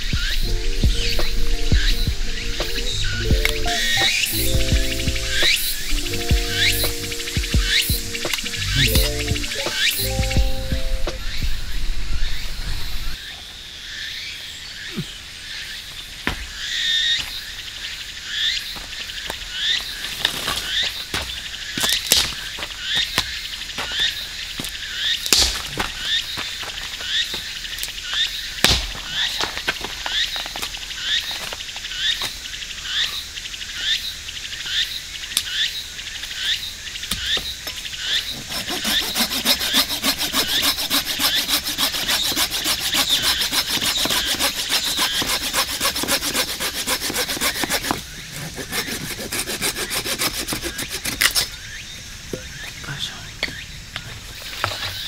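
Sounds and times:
hand saw cutting branch: 38.1 - 51.6.

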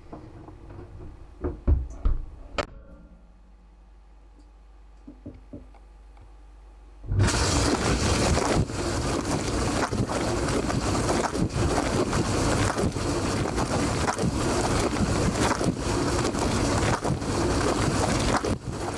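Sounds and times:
dishwasher water jets spraying: 7.1 - 18.9.

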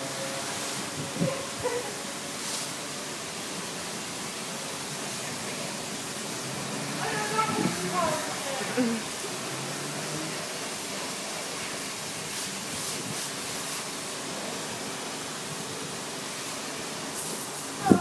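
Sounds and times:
high-pressure water spraying: 0.0 - 18.0.

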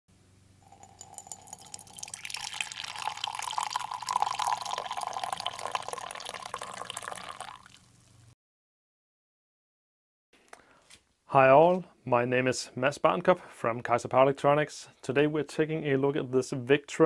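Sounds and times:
drink poured into ceramic mug: 0.6 - 8.0.

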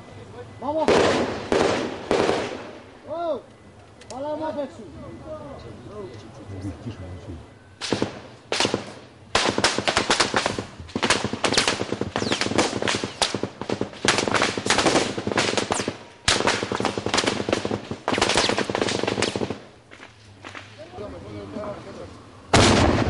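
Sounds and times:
automatic gunfire: 0.9 - 2.8, 7.8 - 19.7, 22.6 - 23.0.

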